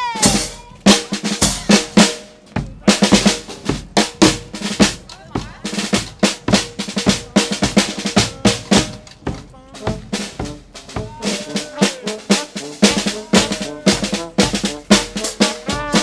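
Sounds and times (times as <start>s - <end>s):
snare drum strokes: 0.0s - 16.0s
bass drum thumps: 1.4s - 11.2s
brass horn holding a note: 7.1s - 16.0s.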